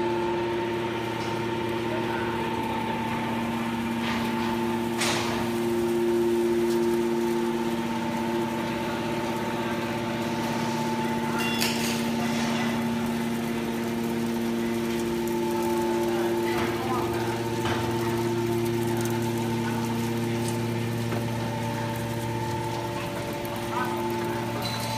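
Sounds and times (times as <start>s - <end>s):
hydraulic power unit humming: 0.0s - 24.9s.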